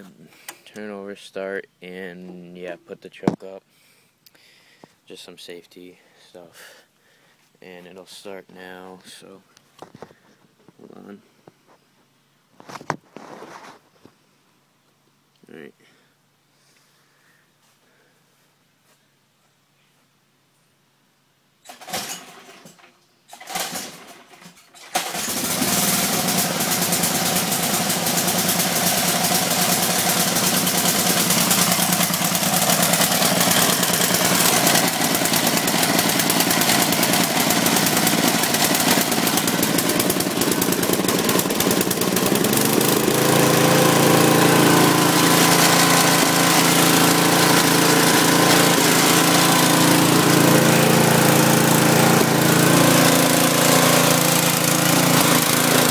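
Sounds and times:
mower engine pull-starting: 0:21.6 - 0:55.9
mower engine running: 0:21.7 - 0:55.9.

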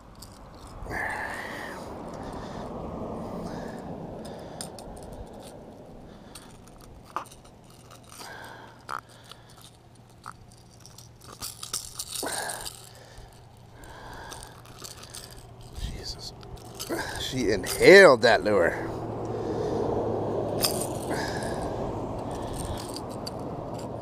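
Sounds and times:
pliers clicking and scraping on metal hooks: 0:00.0 - 0:02.7, 0:03.4 - 0:19.7, 0:20.4 - 0:24.0
rustle: 0:00.0 - 0:24.0.

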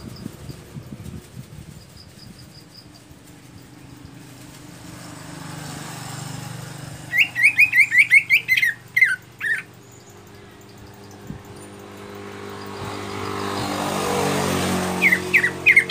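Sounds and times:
vehicle passing hum: 0:00.0 - 0:15.9
bird calling sharp falling notes: 0:07.1 - 0:09.7.

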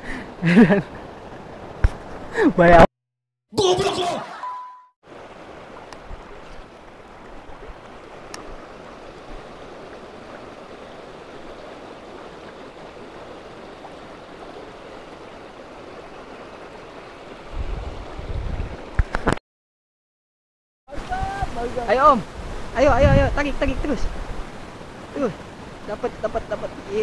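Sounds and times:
water rushing over rocks: 0:05.1 - 0:19.4, 0:20.9 - 0:27.0.

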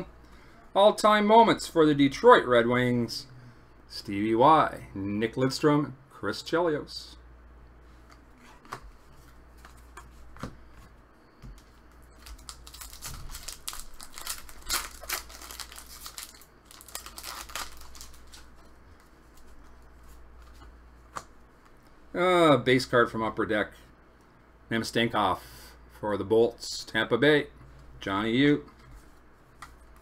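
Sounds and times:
foil wrapper tearing and crinkling: 0:12.2 - 0:18.5.

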